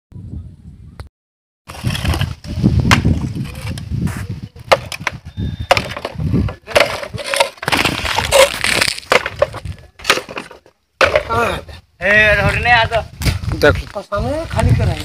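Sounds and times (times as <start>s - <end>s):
roof tiles clattering: 4.6s - 11.5s.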